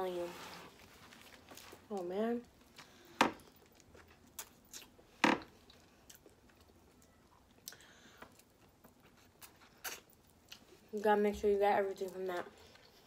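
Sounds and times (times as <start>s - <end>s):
chewing: 5.6s - 10.8s.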